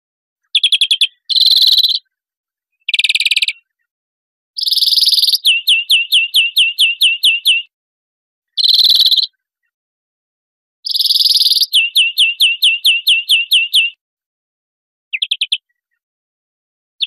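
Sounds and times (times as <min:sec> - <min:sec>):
bird singing buzzy trills: 0:04.6 - 0:07.6, 0:10.9 - 0:14.0.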